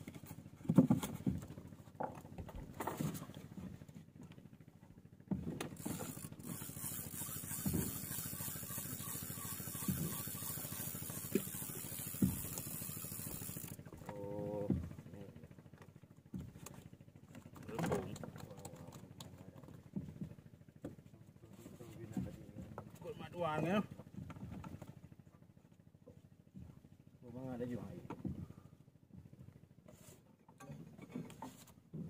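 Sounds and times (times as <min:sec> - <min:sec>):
low engine hum: 0:00.0 - 0:29.8
fishing reel whirring: 0:05.6 - 0:14.0.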